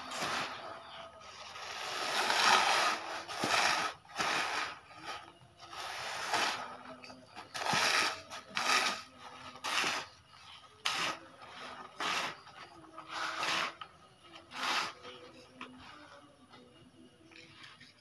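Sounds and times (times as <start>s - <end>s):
granules pouring and scraping: 0.0s - 10.2s, 10.8s - 13.8s, 14.5s - 15.2s.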